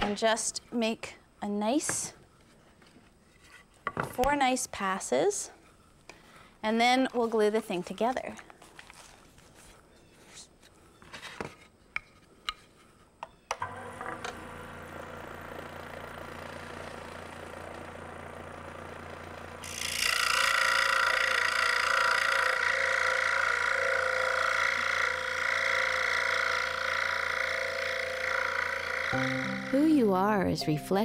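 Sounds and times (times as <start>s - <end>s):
scroll saw humming: 13.6s - 30.2s
saw blade cutting wood: 18.9s - 30.0s.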